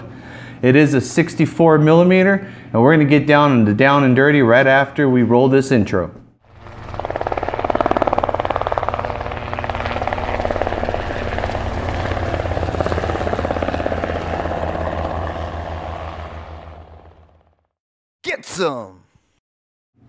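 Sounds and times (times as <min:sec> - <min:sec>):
helicopter rotor blades: 0:06.4 - 0:17.7.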